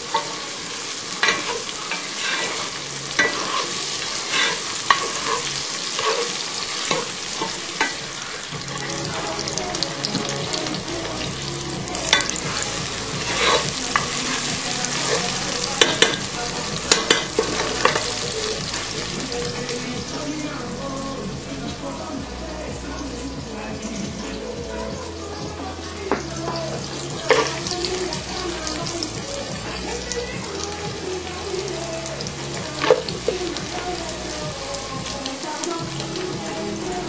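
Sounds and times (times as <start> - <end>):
food sizzling in a pan: 0.0 - 37.0
utensil scraping a pan: 1.2 - 9.3, 12.0 - 19.7.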